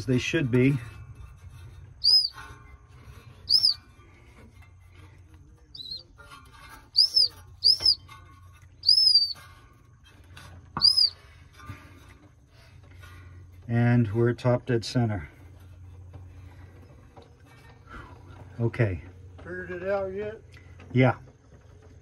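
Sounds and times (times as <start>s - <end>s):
whistle toots rising and falling: 2.0s - 2.4s, 3.5s - 3.8s, 5.8s - 6.0s, 7.0s - 8.0s, 8.8s - 9.4s, 10.8s - 11.2s.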